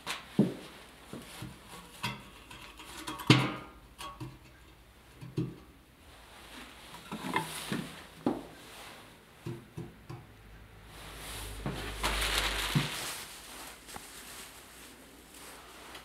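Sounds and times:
scraping on metal: 1.7s - 3.4s, 6.9s - 8.0s
plastic pipe knocking on metal drum: 9.4s - 10.2s.

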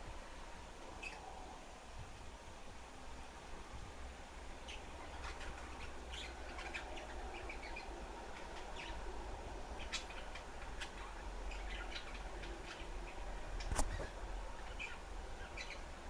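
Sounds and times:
low steady hum: 0.0s - 16.0s
budgerigars chirping: 1.0s - 1.3s, 4.6s - 9.1s, 9.7s - 15.9s.

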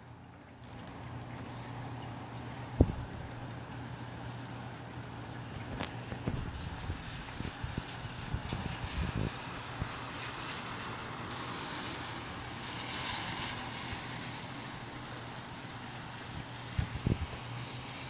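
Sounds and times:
rain hissing: 0.8s - 18.0s
gusty storm wind rushing: 6.3s - 10.0s.

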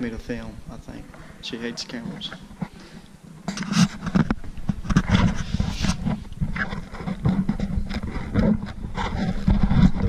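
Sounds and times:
camera handling noise: 3.4s - 10.0s.

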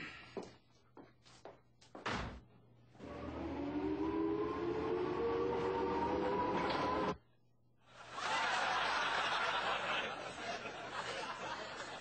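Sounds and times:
whine rising in pitch: 3.0s - 7.2s.

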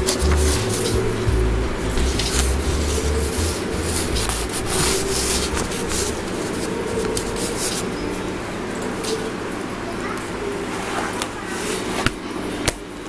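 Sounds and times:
faint steady hum: 0.0s - 13.0s
paper rustling: 1.9s - 8.2s.

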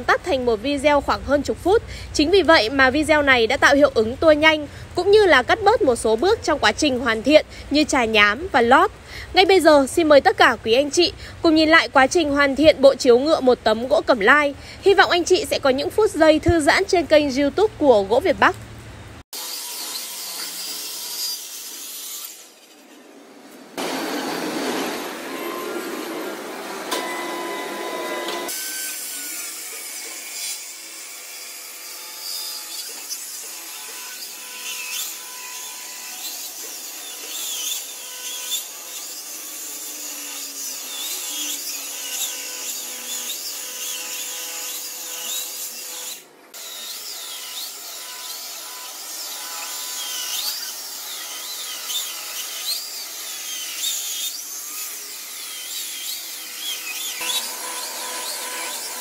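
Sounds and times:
circular saw cutting wood: 19.3s - 59.0s.

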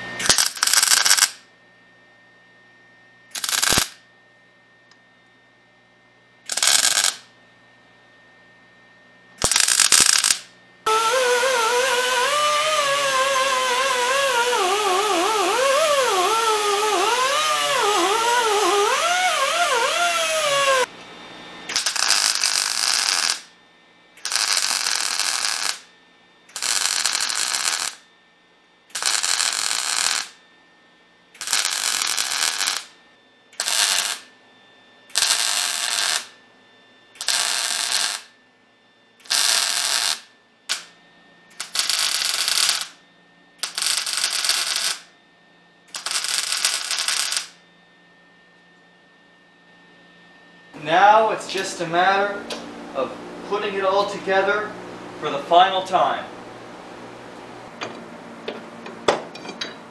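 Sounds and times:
welder crackling hiss: 0.0s - 1.4s, 3.3s - 4.0s, 6.5s - 7.3s, 9.4s - 20.9s, 21.7s - 23.5s, 24.2s - 25.9s, 26.5s - 28.0s, 28.9s - 30.4s, 31.4s - 33.0s, 33.6s - 34.3s, 35.1s - 36.3s, 37.2s - 38.3s, 39.2s - 40.9s, 41.6s - 43.0s, 43.6s - 45.1s, 45.9s - 47.6s
faint hum: 0.0s - 59.9s
hand grinder whine: 0.2s - 1.3s, 3.3s - 3.9s, 6.5s - 7.2s, 9.4s - 20.9s, 21.7s - 23.4s, 24.2s - 25.8s, 26.5s - 28.0s, 28.9s - 30.3s, 31.4s - 32.9s, 33.6s - 34.2s, 35.1s - 36.3s, 37.2s - 38.2s, 39.2s - 40.2s, 41.6s - 42.9s, 43.6s - 45.0s, 45.9s - 47.5s.

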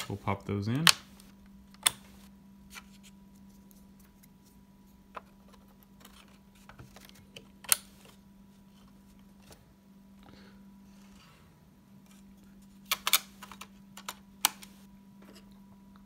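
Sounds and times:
memory sticks clicking into slots: 12.9s - 14.8s.

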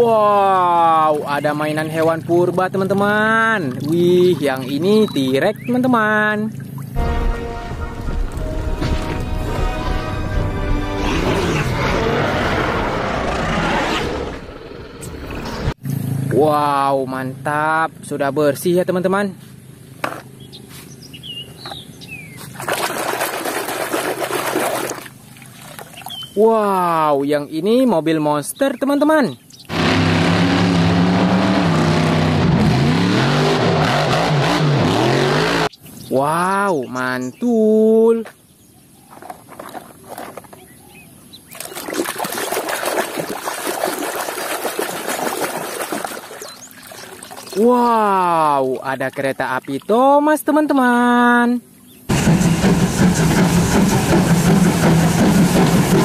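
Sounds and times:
water splashing in a tub: 0.4s - 7.0s, 22.4s - 26.2s, 39.1s - 40.6s, 41.5s - 50.0s
bird chirps: 4.7s - 7.0s, 20.4s - 22.6s, 25.9s - 26.5s, 40.4s - 41.9s, 46.3s - 47.7s
hand splashing in soapy water: 22.5s - 26.1s, 41.6s - 47.6s.

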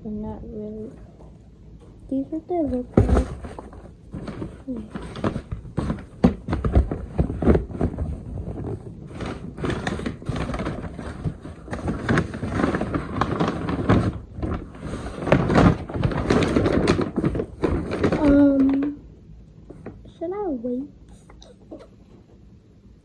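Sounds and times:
cardboard scraping and rustling: 2.8s - 18.8s
cardboard box knocks and thumps: 5.1s - 8.7s.

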